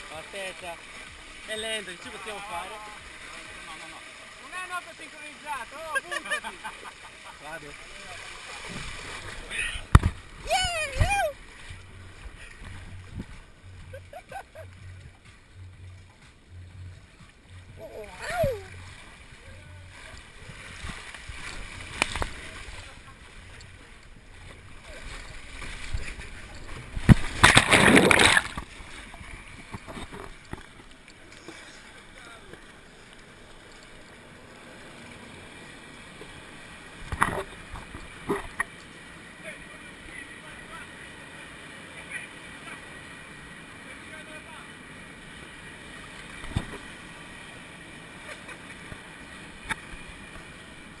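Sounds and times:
water rushing through slide tube: 0.0 - 15.1, 17.7 - 33.0
loud splash into pool: 27.0 - 28.7.

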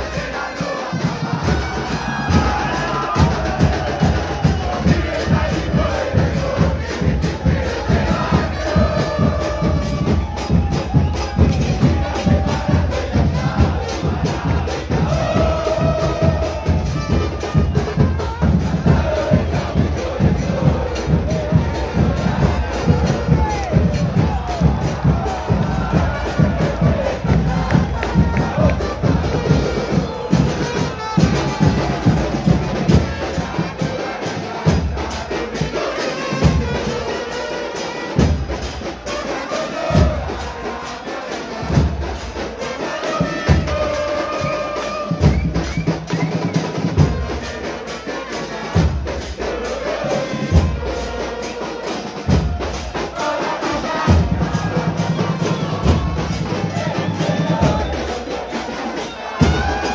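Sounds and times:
crowd singing a chant: 0.0 - 59.9
bass drums pounding: 1.0 - 33.9, 52.2 - 53.0, 54.0 - 58.3
trumpets playing: 15.1 - 23.6, 24.3 - 34.6.

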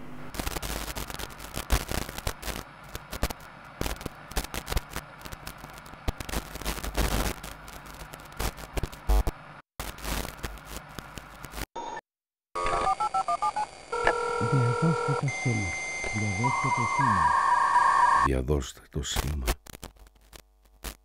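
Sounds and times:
large fire crackling and popping: 0.3 - 11.7.

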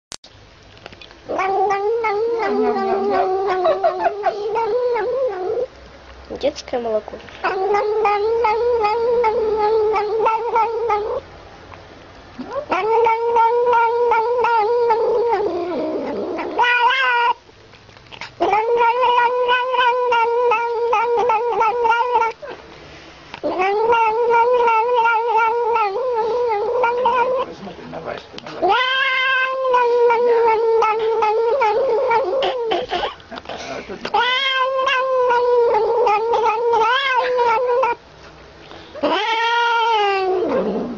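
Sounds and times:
cat yowling: 1.3 - 5.7, 7.4 - 11.2, 12.4 - 17.4, 18.4 - 22.5, 23.4 - 27.5, 28.6 - 33.1, 34.1 - 38.0, 39.0 - 40.9.

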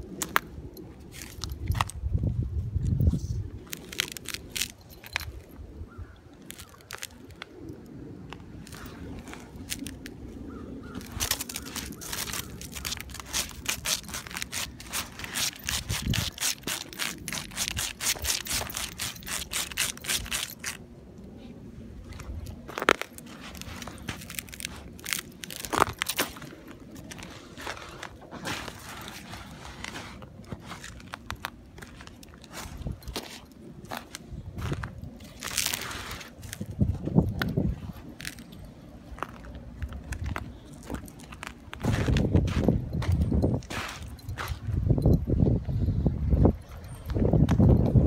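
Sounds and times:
dog crunching snow: 10.8 - 20.8, 22.2 - 34.0, 35.2 - 36.7.

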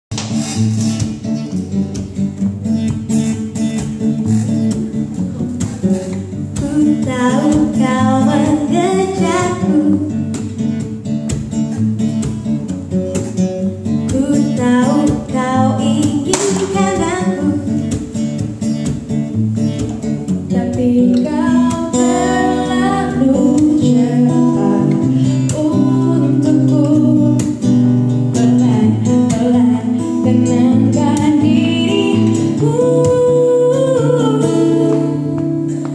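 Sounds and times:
acoustic guitar playing: 0.1 - 35.9
women singing: 6.5 - 10.2, 14.1 - 17.7, 20.5 - 35.9.

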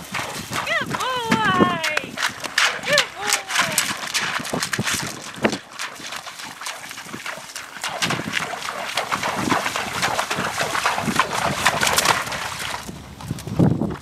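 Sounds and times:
hooves splashing through shallow water: 0.0 - 14.0.

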